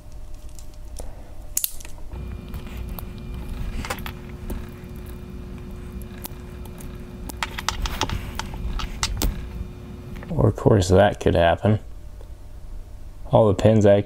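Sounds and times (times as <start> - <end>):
screwdriver scraping on plastic: 2.1 - 10.3
low hum: 2.1 - 10.6.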